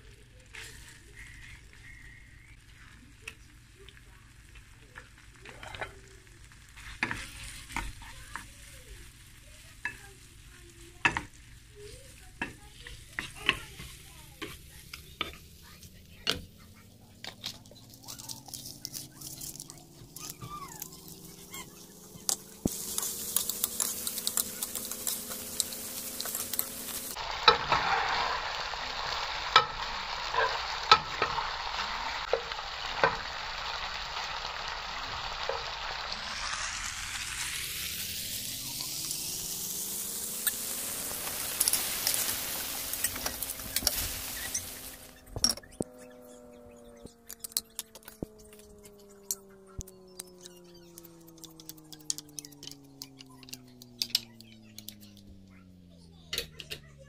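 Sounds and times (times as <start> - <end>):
shrimp sizzling in oil: 0.0 - 55.2
spatula scraping a pan: 6.7 - 8.5, 11.0 - 15.7, 16.3 - 31.5, 40.2 - 46.0
faint rising tone: 35.8 - 54.2.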